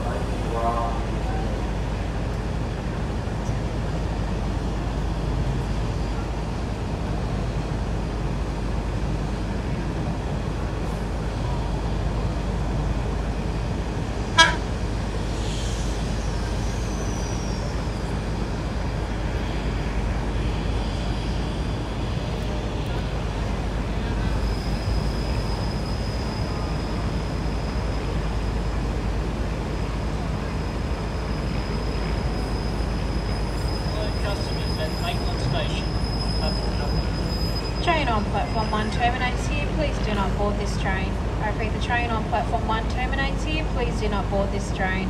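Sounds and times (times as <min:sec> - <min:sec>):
train rumbling: 0:00.0 - 0:45.0
faint high tone: 0:14.4 - 0:14.7.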